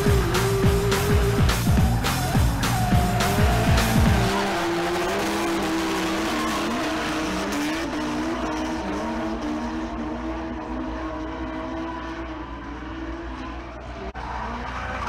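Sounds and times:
heavy music beat: 0.0 - 7.7
car engines revving: 0.0 - 15.0.

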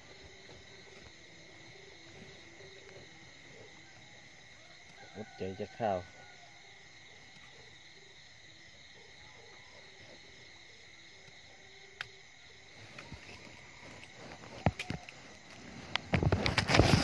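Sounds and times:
insects trilling: 0.0 - 17.0
rustling: 12.8 - 17.0.

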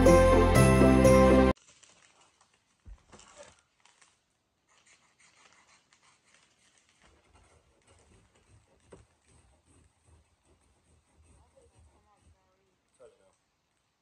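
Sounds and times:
plastic bag crinkling: 1.6 - 8.2.

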